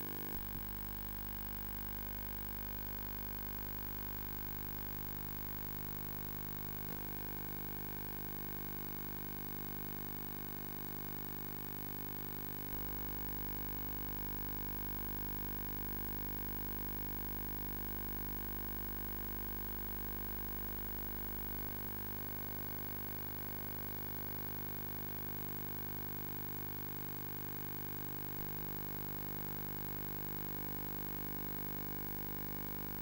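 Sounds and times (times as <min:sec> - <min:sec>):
electrical hum: 0:00.0 - 0:00.5.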